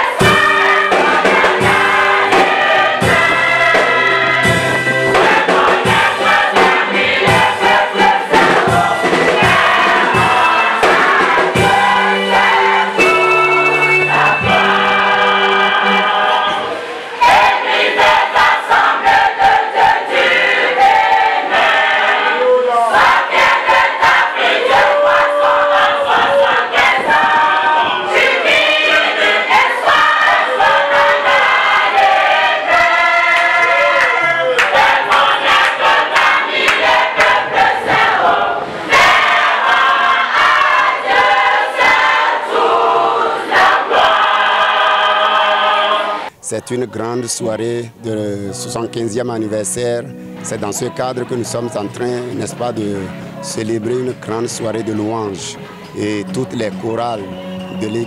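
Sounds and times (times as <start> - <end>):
women's choir singing: 0.0 - 46.4.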